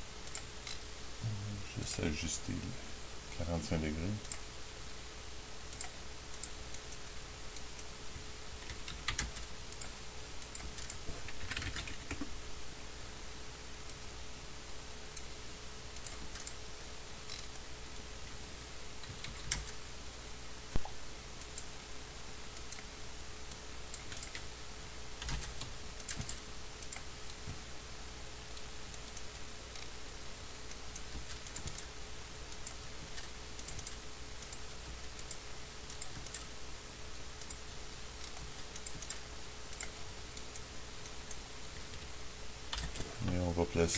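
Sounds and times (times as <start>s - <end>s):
faint hum: 0.0s - 43.9s
keyboard typing: 8.6s - 12.3s, 19.0s - 19.8s, 24.0s - 24.5s, 25.2s - 27.6s, 30.7s - 31.9s, 32.6s - 36.5s, 38.2s - 40.6s, 42.7s - 43.9s
mouse clicks: 30.7s - 31.9s, 32.5s - 36.5s, 38.2s - 42.1s.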